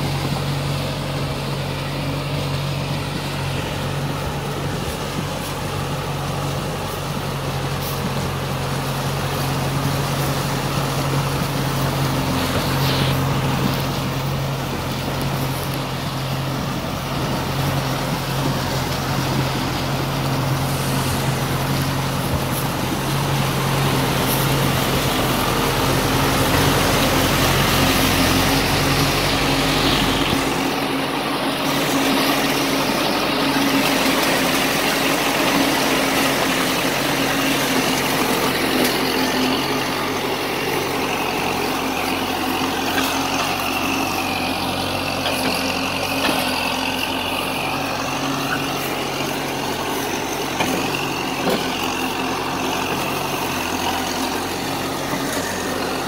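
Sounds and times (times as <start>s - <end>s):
mud and water churning: 0.0s - 56.0s
tractor diesel engine under load: 0.0s - 56.0s.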